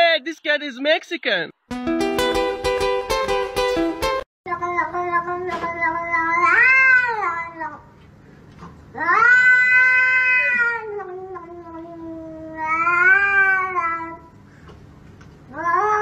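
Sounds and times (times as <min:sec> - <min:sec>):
cat yowling: 0:06.2 - 0:07.5, 0:09.0 - 0:14.2, 0:15.5 - 0:16.0.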